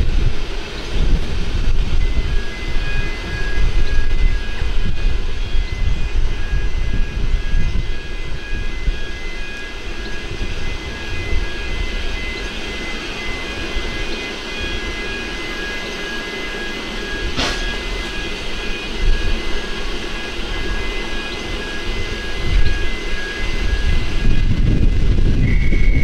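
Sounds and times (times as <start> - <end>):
steam train rumbling: 0.0 - 26.0
sharp metal clank: 17.3 - 18.2.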